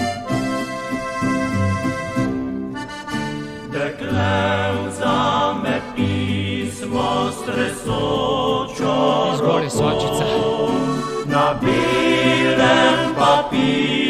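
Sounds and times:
accordion playing folk song: 0.0s - 7.6s, 8.8s - 14.0s
voices singing with vibrato: 2.8s - 14.0s.

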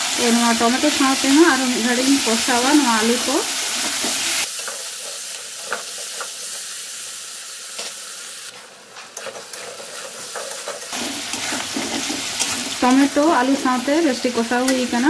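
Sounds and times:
vegetables sizzling in oil: 0.0s - 15.0s
spatula scraping metal pan: 9.2s - 13.0s.

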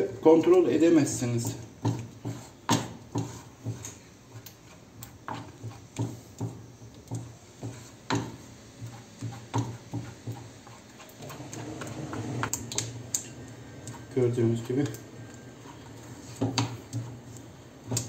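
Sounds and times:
wooden spoon knocking on frying pan: 5.2s - 10.5s, 16.4s - 17.1s.

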